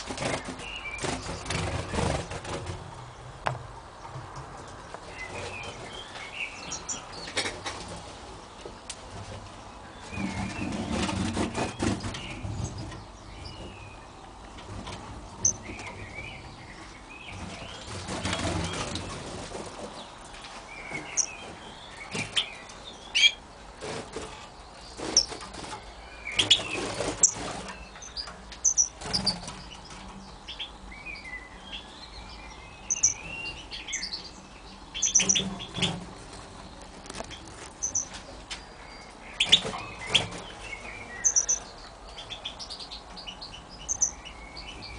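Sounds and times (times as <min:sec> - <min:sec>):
goldfinches chirping: 0:15.4 - 0:17.9, 0:20.8 - 0:23.4, 0:24.8 - 0:44.9.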